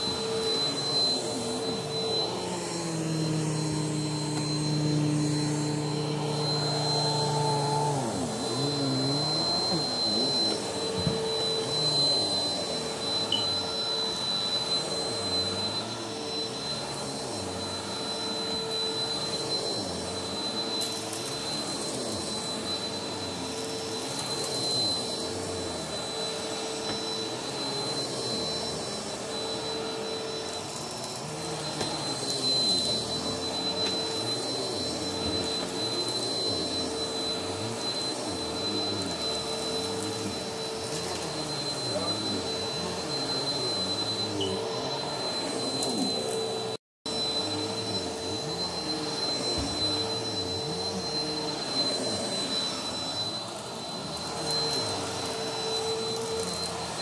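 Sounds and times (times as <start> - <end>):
vacuum cleaner running: 0.0 - 57.0.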